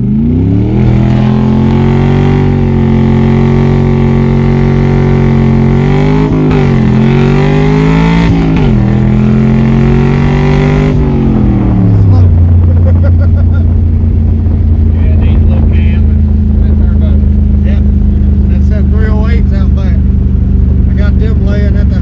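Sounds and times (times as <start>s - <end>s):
engine revving hard: 0.0s - 13.5s.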